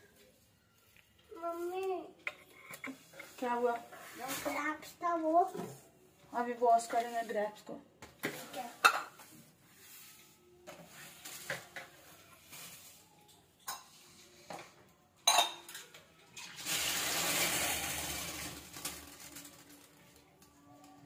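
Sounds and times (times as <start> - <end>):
utensils and dishes clinking: 8.2 - 9.3, 10.7 - 20.2.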